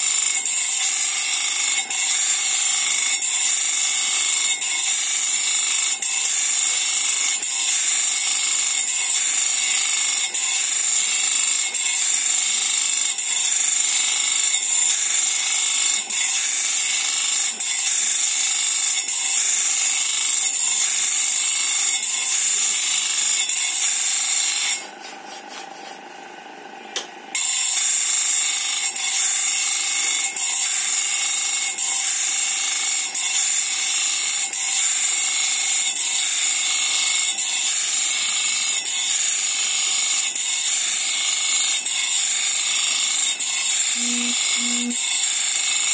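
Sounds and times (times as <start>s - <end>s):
bench grinder grinding saw blade: 0.0s - 45.9s.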